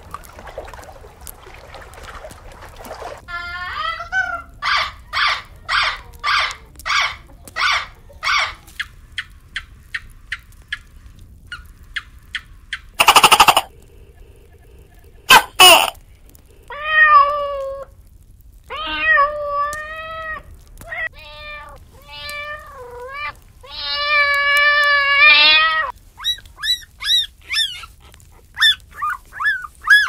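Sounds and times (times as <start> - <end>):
loud harsh bursts: 13.0 - 13.7
parrot squawking: 13.0 - 13.8, 14.9 - 16.0
kitten meowing: 18.7 - 27.9.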